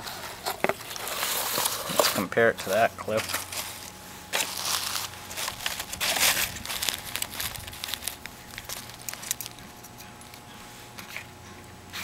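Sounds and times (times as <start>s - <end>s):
plastic bags crinkling: 3.1s - 10.4s.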